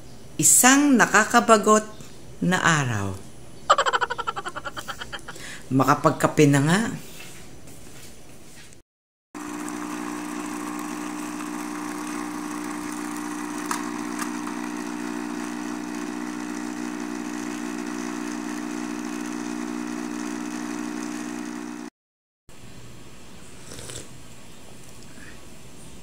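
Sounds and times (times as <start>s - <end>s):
coffee machine pump humming: 9.4s - 21.9s.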